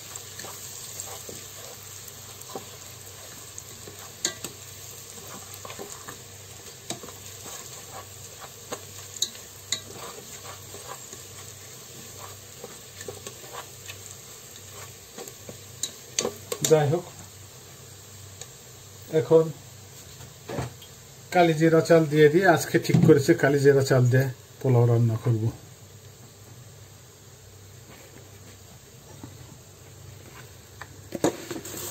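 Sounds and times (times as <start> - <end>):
spatula scraping a pot: 0.0 - 16.4
onions sizzling in butter: 0.0 - 31.9.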